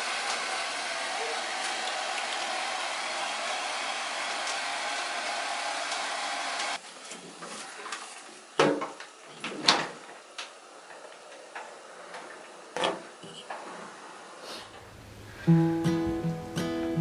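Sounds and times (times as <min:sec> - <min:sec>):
hair dryer blowing: 0:00.0 - 0:06.8.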